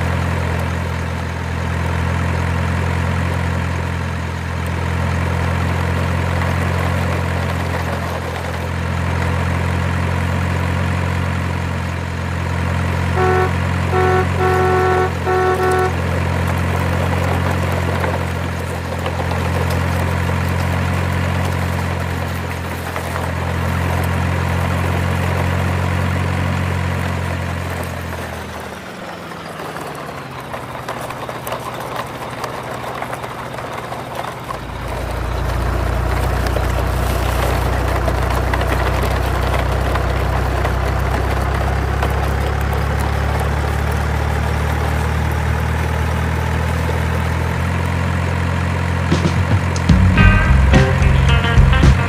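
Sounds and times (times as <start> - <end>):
truck engine idling: 0.0 - 52.0
music: 49.1 - 52.0.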